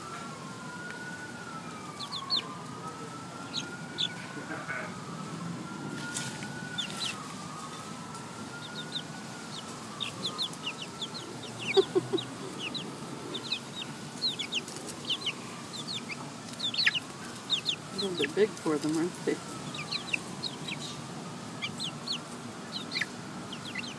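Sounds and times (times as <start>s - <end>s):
faint siren wailing: 0.0s - 23.9s
chicks peeping: 1.5s - 5.1s, 5.9s - 23.9s
chicken clucks: 8.7s - 19.1s, 21.6s - 23.9s.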